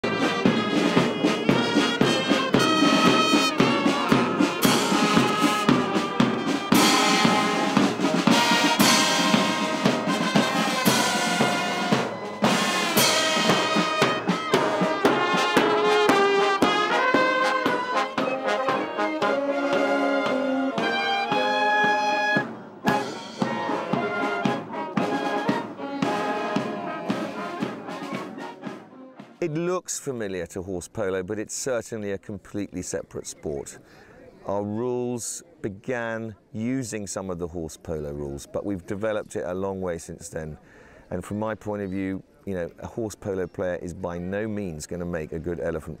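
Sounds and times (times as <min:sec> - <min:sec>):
marching brass band: 0:00.0 - 0:29.5.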